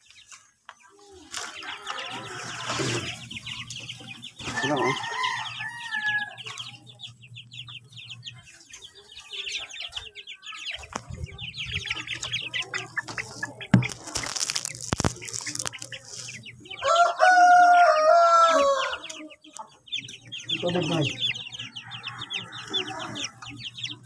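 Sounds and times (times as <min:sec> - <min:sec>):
chicks peeping: 0:00.0 - 0:24.0
rooster crowing: 0:01.6 - 0:03.2, 0:04.5 - 0:06.5, 0:16.8 - 0:19.1, 0:21.7 - 0:23.4
rustling: 0:13.0 - 0:16.4.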